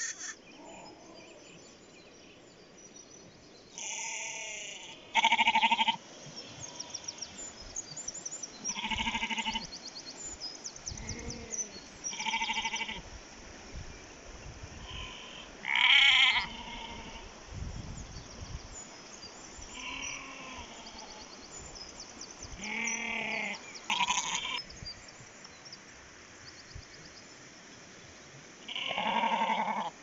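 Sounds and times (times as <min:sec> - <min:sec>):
sheep bleating: 0:03.8 - 0:06.0, 0:08.7 - 0:09.7, 0:12.1 - 0:13.0, 0:14.9 - 0:17.2, 0:19.8 - 0:20.8, 0:22.6 - 0:24.6, 0:28.7 - 0:29.9.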